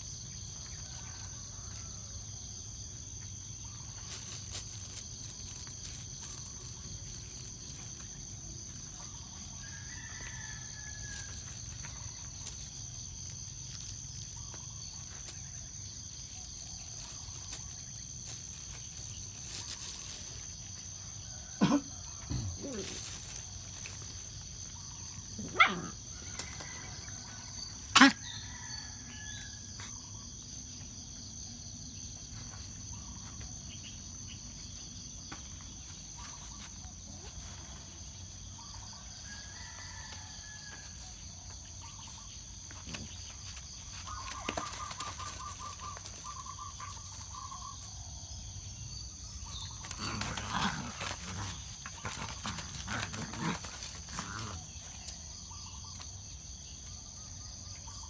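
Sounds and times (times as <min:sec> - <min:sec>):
puppies scuffling: 0:42.6 - 0:47.3, 0:49.8 - 0:55.0.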